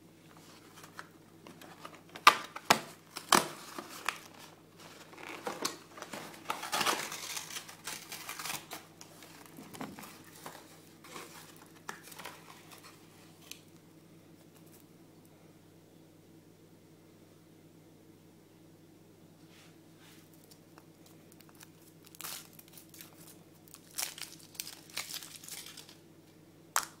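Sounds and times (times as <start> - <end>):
soft handling of wrapped eggs: 0.2 - 15.0, 19.4 - 26.2
cardboard tearing and rustling: 0.5 - 13.6, 21.7 - 26.0.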